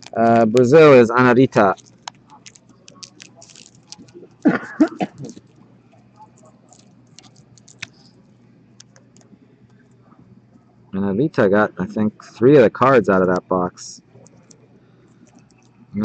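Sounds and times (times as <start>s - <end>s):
plastic bag crinkling: 0.0s - 5.6s, 6.2s - 8.1s
person's voice: 11.0s - 13.9s.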